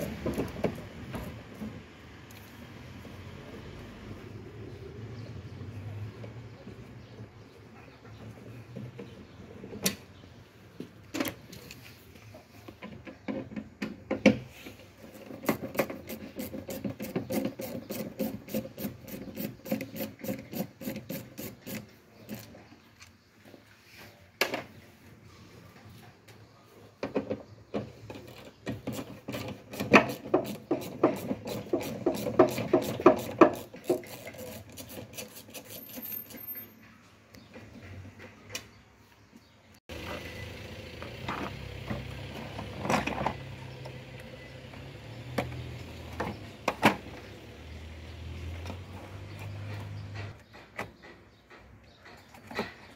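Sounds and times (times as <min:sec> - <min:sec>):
hand tool scraping metal edge: 0:15.1 - 0:22.6, 0:28.7 - 0:36.8.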